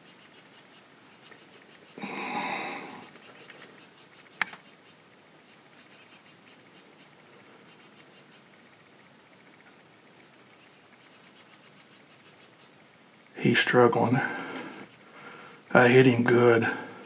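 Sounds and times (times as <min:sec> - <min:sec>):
bird chirps: 0:00.0 - 0:13.0.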